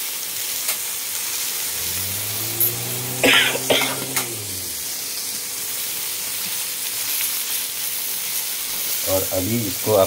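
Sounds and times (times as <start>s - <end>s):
vegetables sizzling in a pan: 0.0s - 10.0s
person clearing throat: 3.0s - 4.4s
person coughing: 3.2s - 4.2s.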